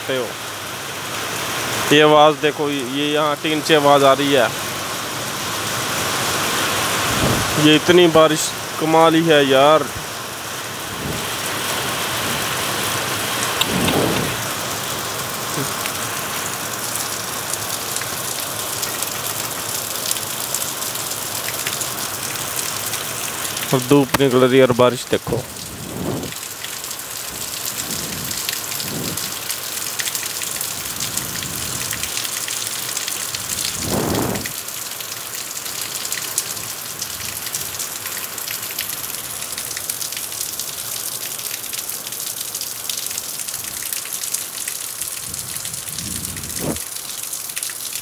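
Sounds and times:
heavy rain on metal and paving: 0.0s - 48.0s
low whooshes: 10.9s - 11.4s, 13.6s - 14.6s, 25.6s - 26.4s, 33.7s - 34.6s.

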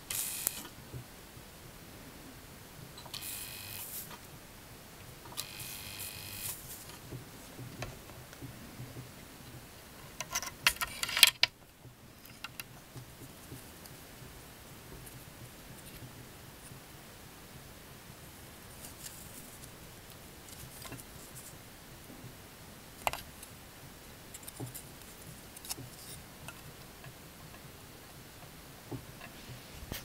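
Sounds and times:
soldering hissing bursts: 0.0s - 0.7s, 3.1s - 4.1s
soldering crackle: 0.0s - 0.8s, 3.0s - 4.2s, 5.3s - 7.0s.

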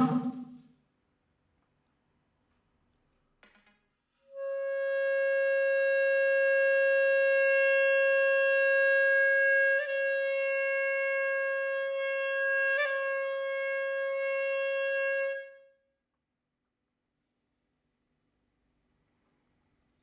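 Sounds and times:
clarinet long steady note: 0.0s - 0.6s, 4.3s - 15.7s.

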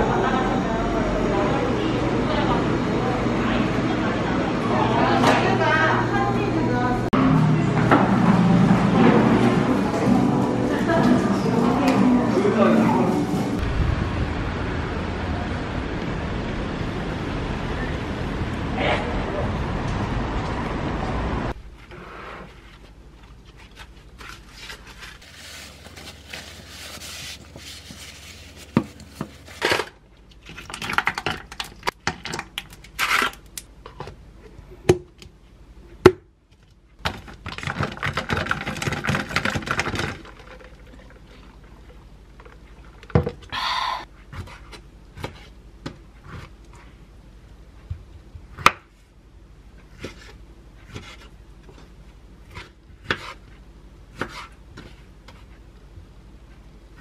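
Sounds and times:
paper towel rustling: 22.0s - 29.8s.

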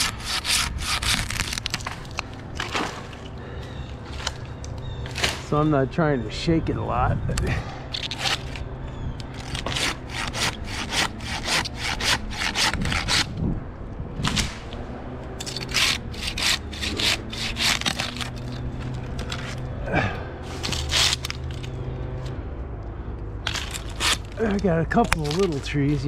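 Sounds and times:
handsaw cutting wood: 0.0s - 1.9s, 8.0s - 8.6s, 9.3s - 13.4s, 15.4s - 18.7s, 20.6s - 21.7s, 23.5s - 24.6s.

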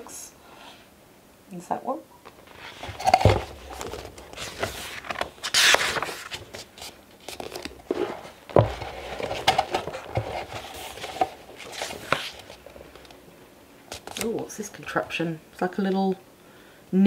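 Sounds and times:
magazine pages rustling: 2.3s - 13.2s, 13.9s - 14.4s
page turning: 2.3s - 13.2s, 13.9s - 14.4s.

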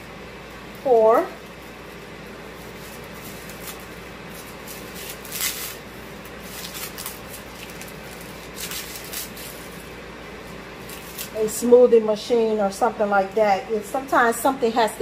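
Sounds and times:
faint steady hum: 0.0s - 15.0s
garlic skins crackling: 2.5s - 11.7s.

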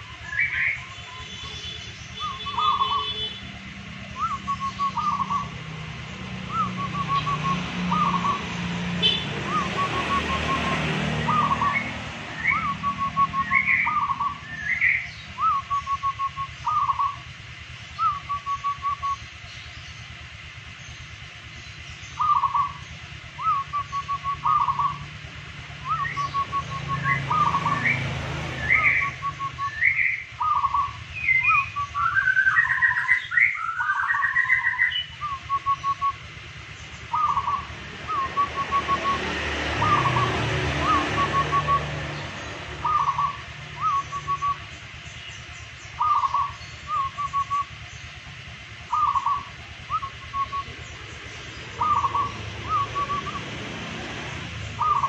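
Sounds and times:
high rising chirps: 4.1s - 17.2s, 23.4s - 36.2s, 36.9s - 48.0s, 48.8s - 55.0s
dove cooing: 4.2s - 5.8s, 6.4s - 17.2s, 22.2s - 22.8s, 23.4s - 25.0s, 37.1s - 44.6s, 46.0s - 47.6s, 48.9s - 50.9s, 51.7s - 54.2s, 54.8s - 55.0s.

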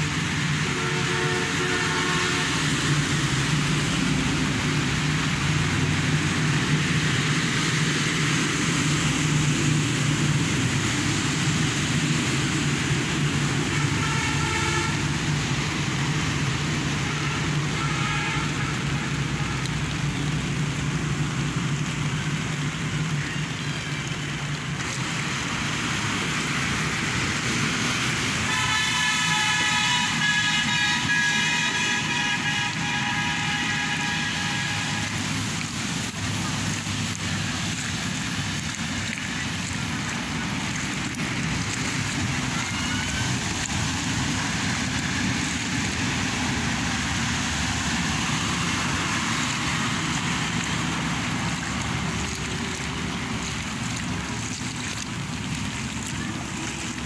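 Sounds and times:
rain: 0.0s - 57.0s
traffic: 0.0s - 57.0s
vehicle engine drone: 0.0s - 57.0s
vehicle horn toots: 0.6s - 2.7s, 13.8s - 15.0s, 17.0s - 18.8s, 28.4s - 35.2s.

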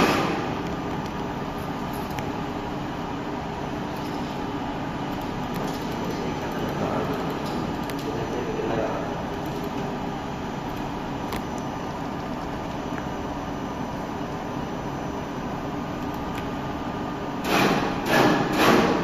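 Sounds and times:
machinery hum and hiss: 0.0s - 19.0s.

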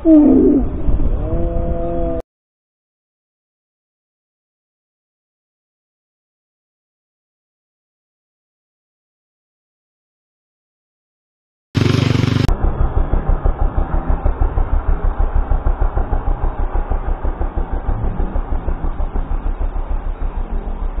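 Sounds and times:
loud burst: 11.8s - 21.0s
small engine chugging: 11.8s - 21.0s.

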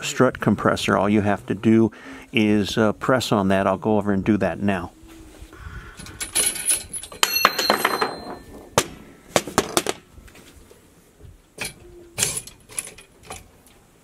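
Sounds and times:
steel tools clinking and clattering: 6.0s - 8.8s, 11.6s - 13.5s.

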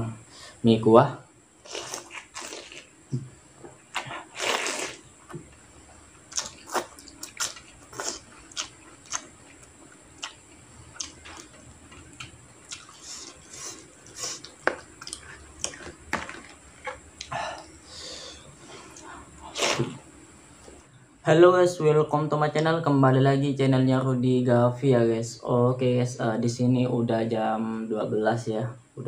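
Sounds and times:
person slurping noodles: 1.6s - 2.8s, 4.0s - 5.0s, 18.9s - 20.0s
wet chewing sounds: 1.6s - 2.9s, 6.2s - 17.7s.

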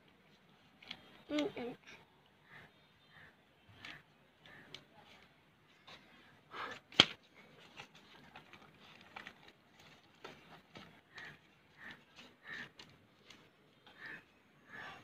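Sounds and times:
paper rustling and crinkling: 5.0s - 13.9s
paper slap on table: 6.9s - 7.2s.

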